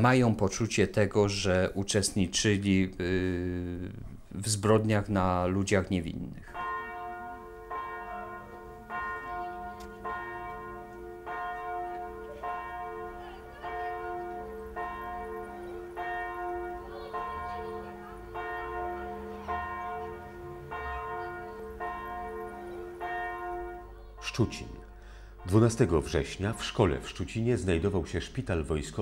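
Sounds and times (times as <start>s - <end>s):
church bell tolling: 6.5s - 28.1s.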